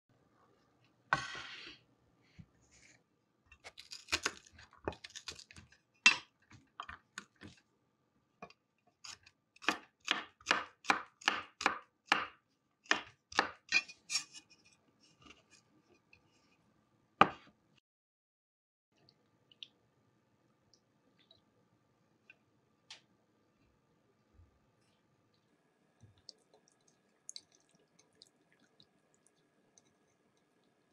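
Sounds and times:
knife chopping on wooden board: 9.6 - 13.7.

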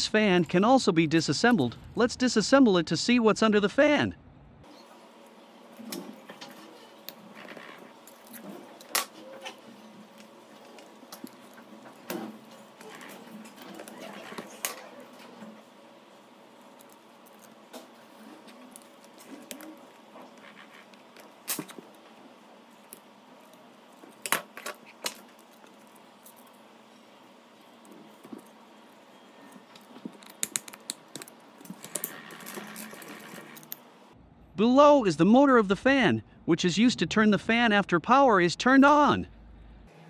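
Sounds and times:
handling noise: 16.5 - 33.9.

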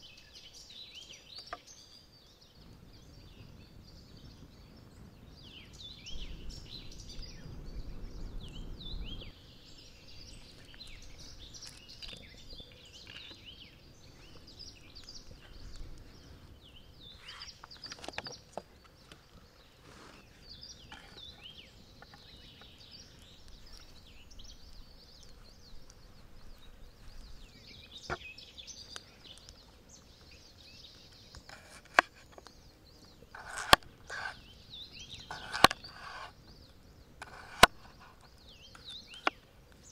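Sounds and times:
birds chirping: 0.0 - 39.9
low rumble: 6.0 - 10.4.

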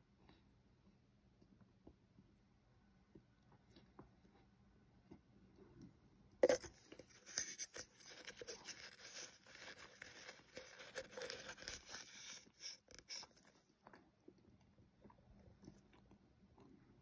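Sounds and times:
spoon scooping powder crunching: 6.4 - 13.6.

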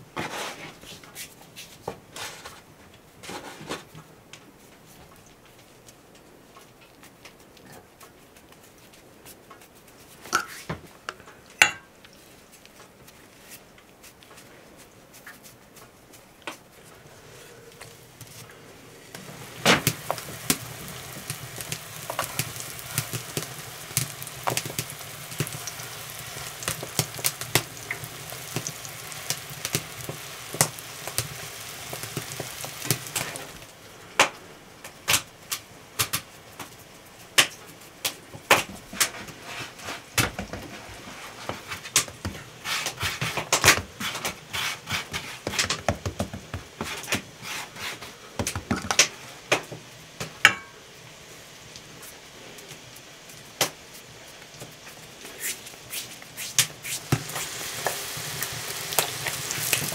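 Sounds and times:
crackles and pops of frying: 1.8 - 16.7, 19.1 - 59.9
hands working dough on board: 4.6 - 10.9, 12.1 - 17.0, 37.3 - 49.0
dough sizzling in hot fat: 17.9 - 59.9.

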